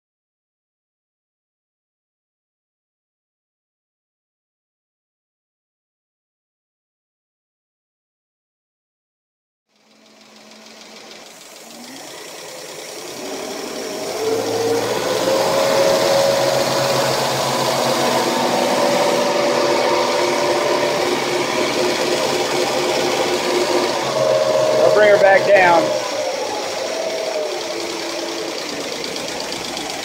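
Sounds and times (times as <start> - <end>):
boat engine idling: 9.8 - 30.0.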